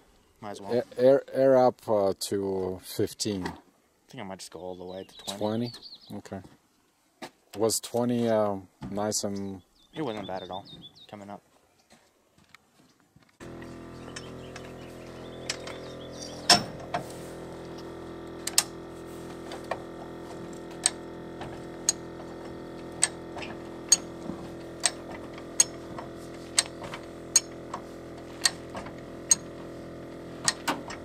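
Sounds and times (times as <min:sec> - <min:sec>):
steady hum: 0:13.4 - 0:31.0
vehicle jack clacking: 0:13.5 - 0:31.0
jack pins ratcheting on steel bar: 0:15.3 - 0:17.1, 0:17.8 - 0:18.8, 0:19.4 - 0:31.0.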